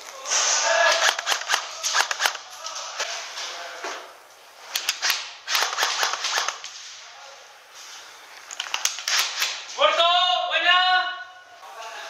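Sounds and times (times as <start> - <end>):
airsoft gun shots: 0.8 - 2.5, 4.7 - 6.7, 8.7 - 9.7.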